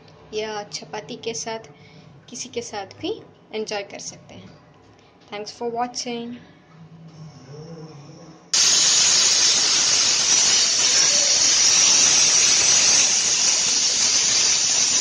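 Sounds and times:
faint steam hiss: 8.6s - 15.0s
pressure cooker steam whistle: 8.6s - 15.0s.

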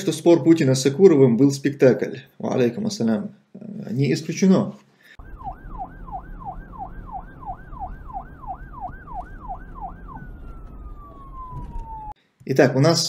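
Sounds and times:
siren yelping: 5.2s - 12.2s.

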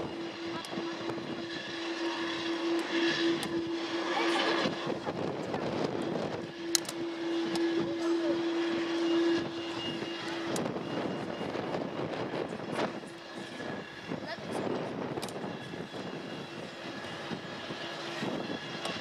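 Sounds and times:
jet engines whining: 0.0s - 19.0s
wind noise on microphone: 4.6s - 8.0s, 8.8s - 19.0s.

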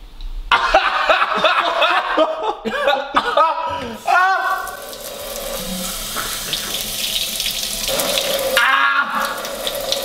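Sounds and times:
faucet water into steel sink: 4.4s - 10.0s.

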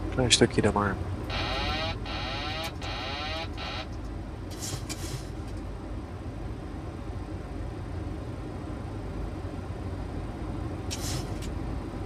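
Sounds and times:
warbling siren warning tone: 1.3s - 3.9s
short hiss: 10.9s - 11.4s.

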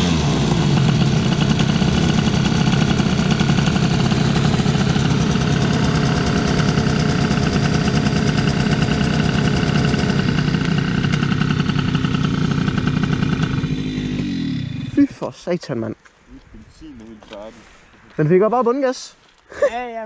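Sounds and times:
two-stroke scooter engine revving: 0.0s - 15.2s.

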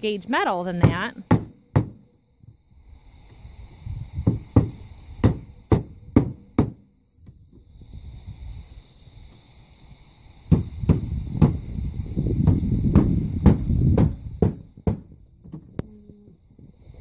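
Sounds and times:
hammer striking nails into sheet metal: 4.3s - 6.8s.

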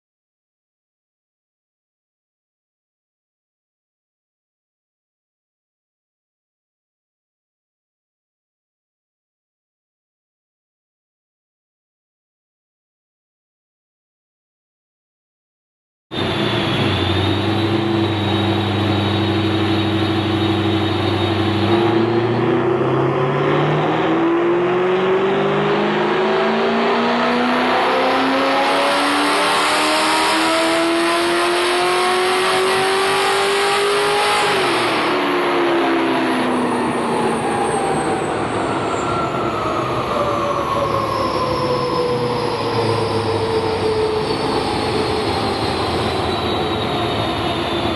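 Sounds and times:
falling whine: 16.1s - 47.9s
car engine revving on dyno: 16.2s - 47.8s.

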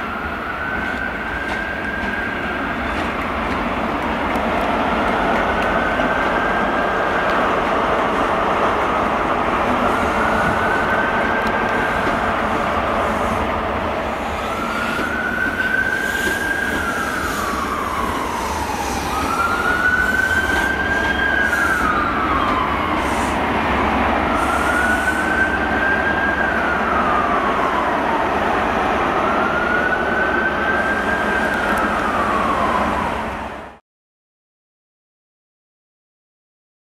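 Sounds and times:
emergency siren wailing: 0.0s - 3.3s, 3.9s - 33.8s
train running: 0.0s - 33.7s.

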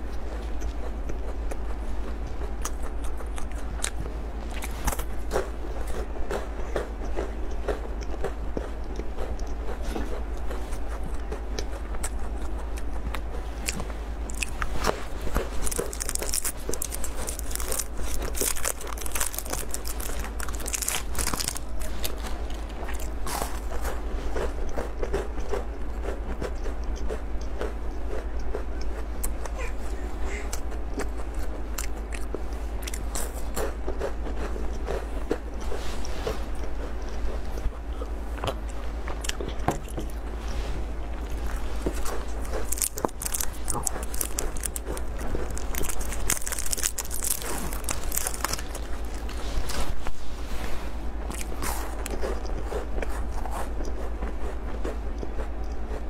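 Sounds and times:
chewing chocolate crunches: 0.0s - 29.7s, 30.5s - 40.2s, 41.1s - 49.8s, 51.3s - 56.0s
low hum: 0.0s - 56.0s
crisp crackling: 13.5s - 24.6s, 40.1s - 50.6s.

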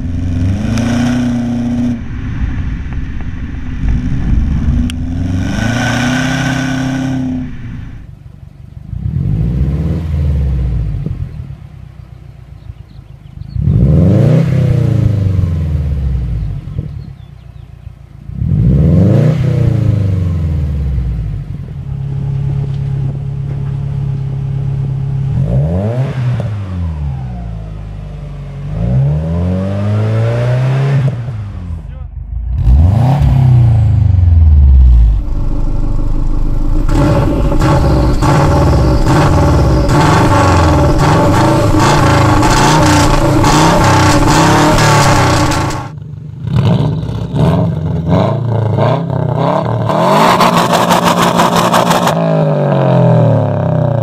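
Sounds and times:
car engine idling: 0.0s - 9.1s, 10.5s - 13.6s, 20.4s - 25.7s, 31.4s - 46.4s
car engine revving: 0.0s - 17.0s, 18.1s - 54.0s
car exhaust under load: 0.0s - 29.3s, 30.1s - 54.0s.

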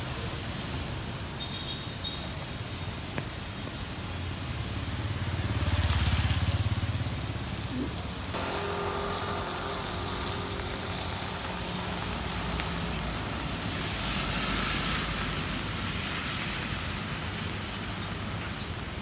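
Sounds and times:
rain and wet road hiss: 0.0s - 19.0s
street noise: 0.0s - 19.0s.

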